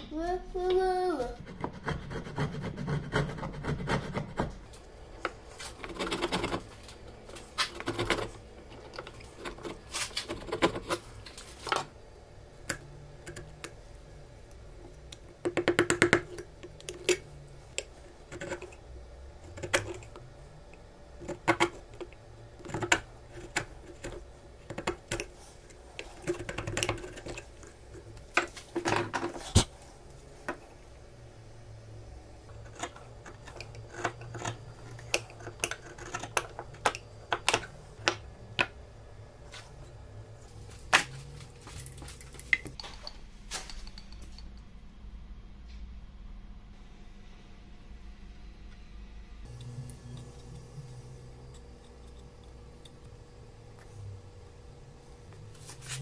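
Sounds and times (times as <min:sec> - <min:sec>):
chisel scraping wood: 0:01.4 - 0:04.6, 0:05.3 - 0:11.6, 0:21.2 - 0:29.7, 0:32.5 - 0:37.7.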